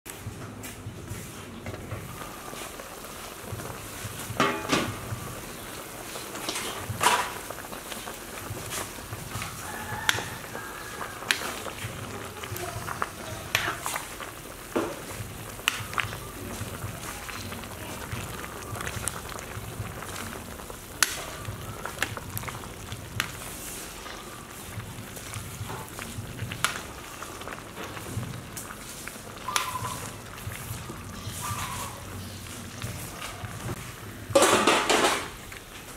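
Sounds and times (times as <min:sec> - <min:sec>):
soup boiling and bubbling: 0:00.1 - 0:35.9
metal pot lid clanking: 0:04.4 - 0:05.0, 0:34.3 - 0:35.4.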